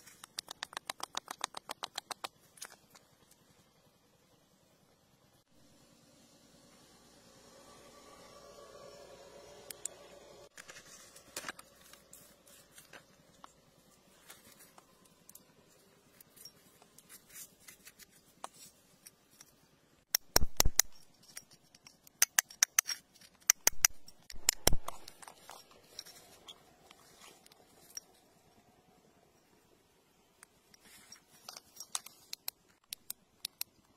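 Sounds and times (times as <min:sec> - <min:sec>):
sharp clicks and knocks: 0:00.0 - 0:03.4, 0:20.1 - 0:25.7.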